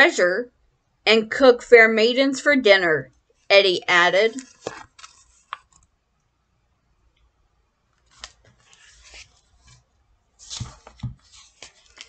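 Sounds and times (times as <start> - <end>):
book pages rustling: 4.3 - 5.9, 7.9 - 12.0.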